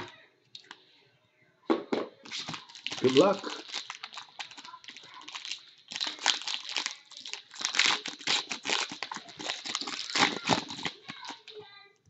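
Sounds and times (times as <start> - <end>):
foil wrapper tearing and crinkling: 2.2 - 11.6.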